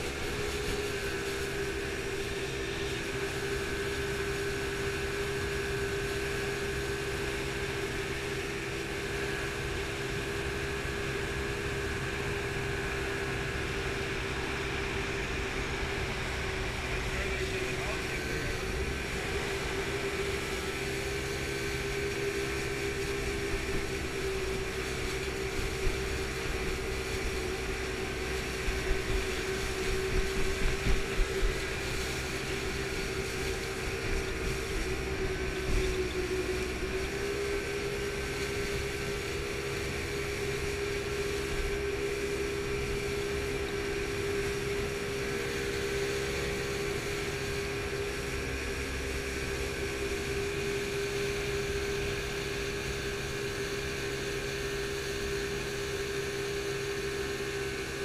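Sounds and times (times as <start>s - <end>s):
boat engine drone: 0.0s - 58.0s.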